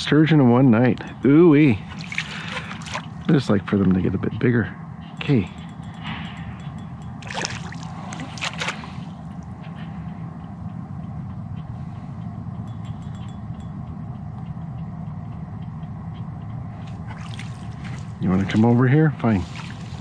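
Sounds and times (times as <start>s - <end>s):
low rumble: 0.0s - 20.0s
fish splashing: 1.8s - 3.4s, 7.2s - 9.4s, 17.0s - 18.2s, 19.4s - 20.0s.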